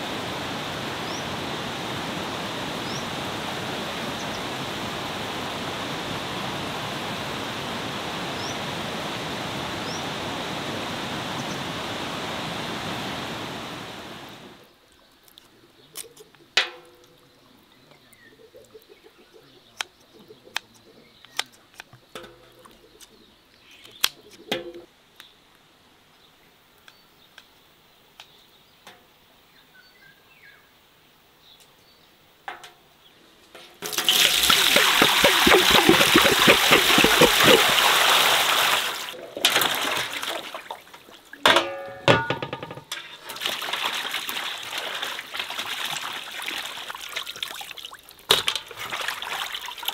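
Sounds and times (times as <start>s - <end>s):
waterfall and stream rushing: 0.0s - 14.6s, 33.9s - 41.3s
faint bird chirps: 14.6s - 25.5s.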